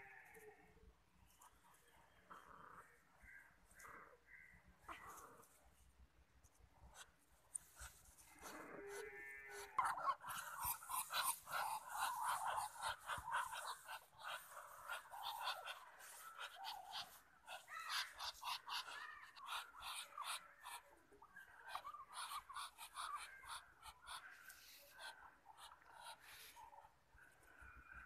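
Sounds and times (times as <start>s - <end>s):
ducks rapid breathy calls: 9.8s - 28.0s.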